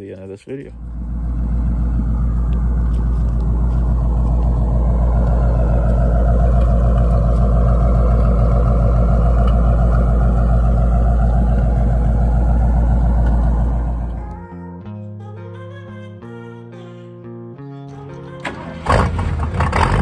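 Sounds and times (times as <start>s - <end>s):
car engine idling: 0.0s - 14.5s, 18.5s - 20.0s.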